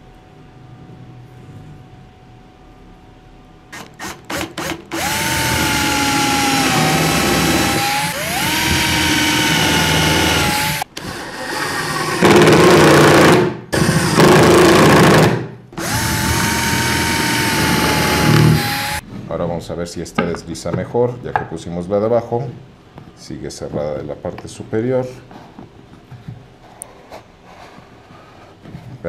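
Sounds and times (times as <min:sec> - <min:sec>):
cordless drill whine: 0:03.7 - 0:15.2, 0:15.8 - 0:19.0
drill trigger blips: 0:03.8 - 0:10.8, 0:15.8 - 0:19.0.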